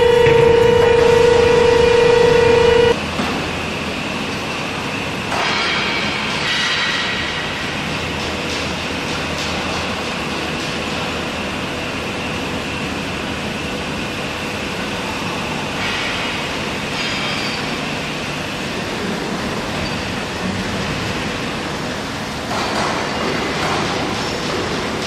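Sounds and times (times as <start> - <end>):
thin steady whine: 0.0 - 3.0
loud industrial furnace noise: 0.0 - 25.0.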